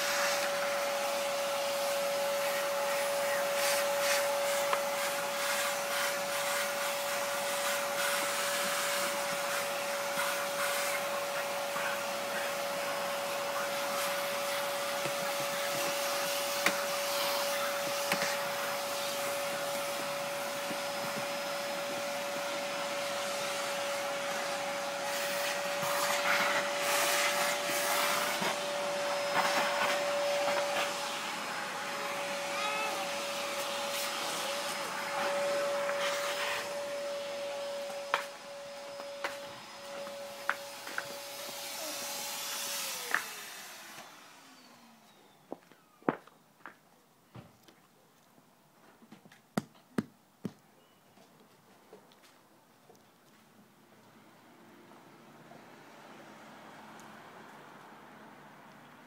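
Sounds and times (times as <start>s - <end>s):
motor whining: 0.4s - 46.1s.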